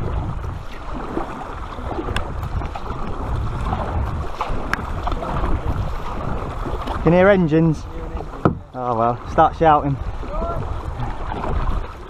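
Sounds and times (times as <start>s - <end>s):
kayak paddle strokes: 0.0s - 12.0s
water splashing around hull: 0.0s - 12.0s
wind on microphone: 0.0s - 12.0s
light knocks: 8.4s - 8.7s.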